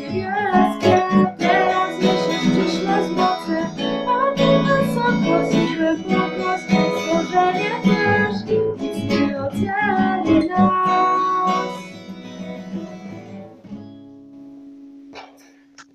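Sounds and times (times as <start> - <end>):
woman singing: 0.0 - 11.9
acoustic guitar strumming: 0.0 - 15.4.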